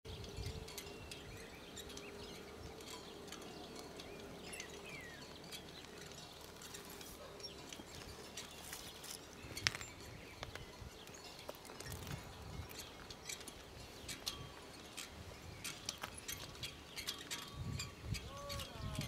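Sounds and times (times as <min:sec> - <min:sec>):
bird chirps and calls: 0:15.4 - 0:19.0.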